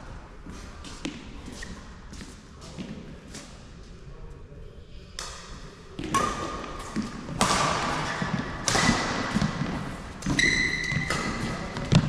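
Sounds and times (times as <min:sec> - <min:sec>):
shoes squeaking on court floor: 0:00.5 - 0:02.9, 0:08.0 - 0:12.0
racquet striking shuttlecock: 0:05.2 - 0:12.0.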